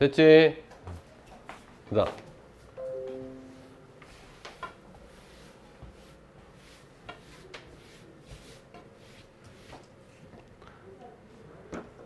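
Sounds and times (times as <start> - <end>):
eraser rubbing a chalkboard: 4.1 - 10.2.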